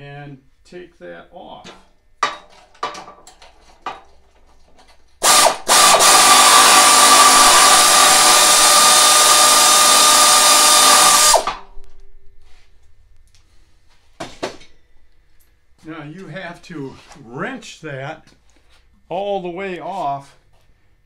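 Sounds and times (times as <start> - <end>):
air ratchet whining: 5.2 - 11.7.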